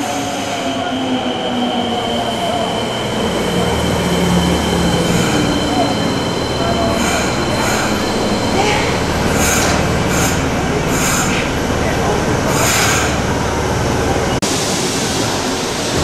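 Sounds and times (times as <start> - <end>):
subway train rumbling on track: 0.0 - 16.0.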